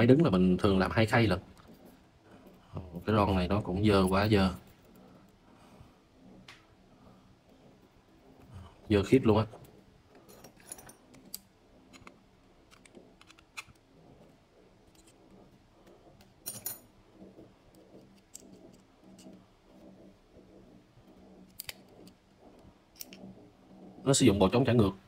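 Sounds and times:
spinning reel parts clicking: 0:09.6 - 0:23.3.

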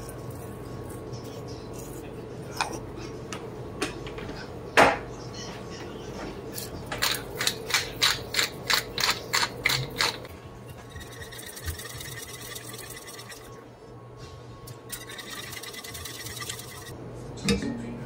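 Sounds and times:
pepper mill grinding: 0:06.6 - 0:10.3, 0:10.9 - 0:13.5, 0:14.9 - 0:16.9
whisk scraping in saucepan: 0:07.8 - 0:13.6, 0:14.9 - 0:16.9.

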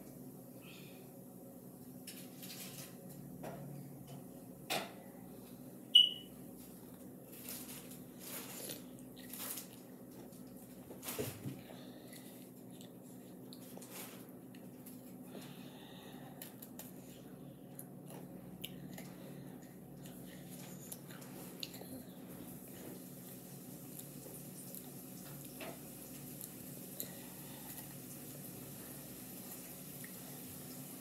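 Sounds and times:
steady low hum: 0:00.0 - 0:25.4
sharp high-pitched squeak: 0:05.9 - 0:06.3.

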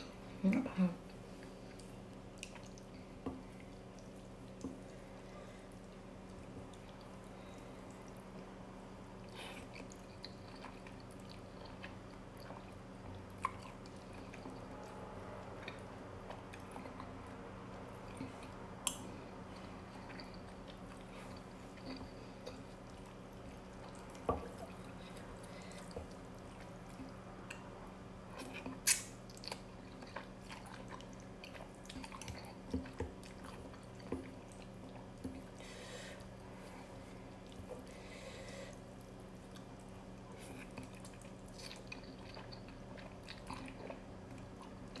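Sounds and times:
steady low hum: 0:00.0 - 0:45.0
chewing and mouth sounds: 0:00.1 - 0:45.0.

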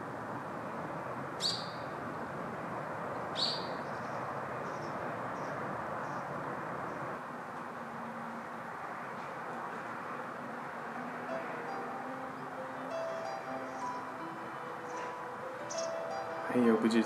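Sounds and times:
outdoor background hiss: 0:00.0 - 0:17.0
bird calling: 0:03.4 - 0:04.1, 0:11.7 - 0:16.4.

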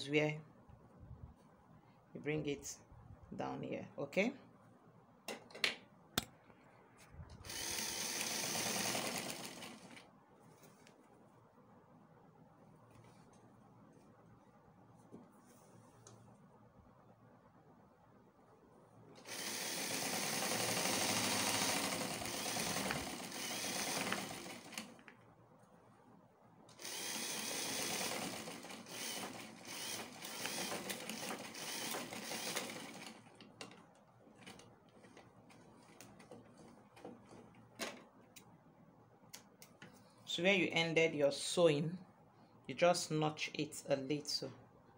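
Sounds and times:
sewing machine stitching: 0:07.4 - 0:10.0, 0:19.2 - 0:25.0, 0:26.8 - 0:33.3.

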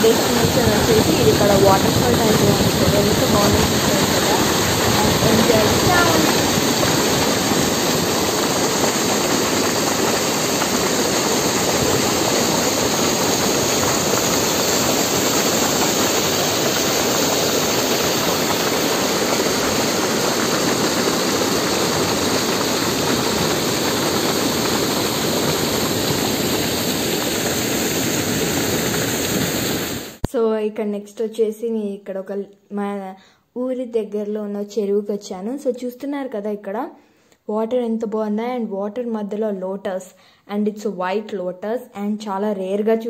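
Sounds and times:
water rushing over weir: 0:00.0 - 0:30.3.

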